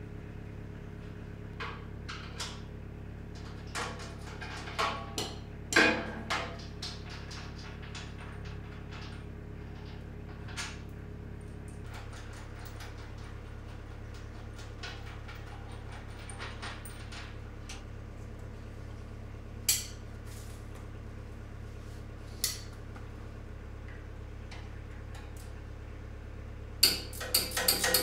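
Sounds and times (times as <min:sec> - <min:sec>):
steady low hum: 0:00.0 - 0:28.0
wrench and bolts clinking on metal: 0:26.8 - 0:28.0.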